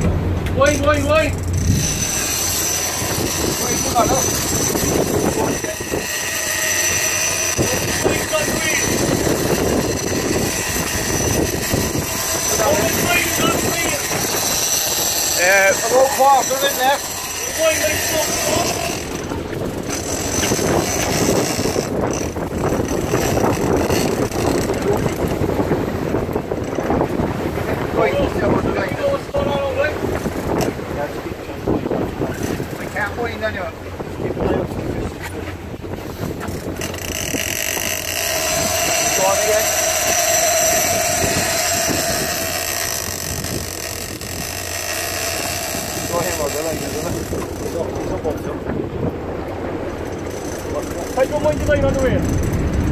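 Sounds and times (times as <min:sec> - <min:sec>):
boat motor running: 0:00.0 - 0:52.9
water rushing along hull: 0:00.0 - 0:52.9
wind buffeting microphone: 0:00.0 - 0:52.9.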